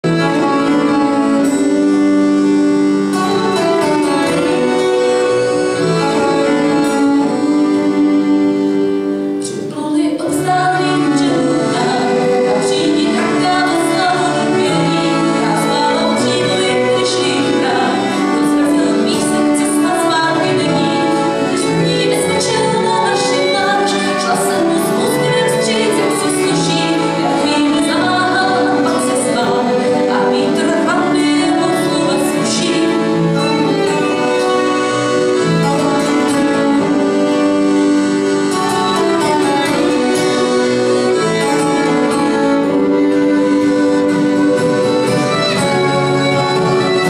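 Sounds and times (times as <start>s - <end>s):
accordion: 0.0s - 47.0s
acoustic guitar strumming: 0.0s - 47.0s
fiddle: 0.0s - 47.0s
woman singing: 9.4s - 34.4s.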